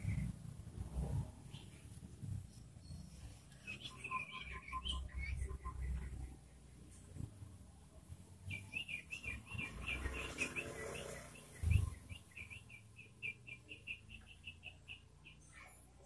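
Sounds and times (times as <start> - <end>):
bird chirping song: 0.0 - 7.3, 8.3 - 16.0
dull low thump: 11.6 - 12.0.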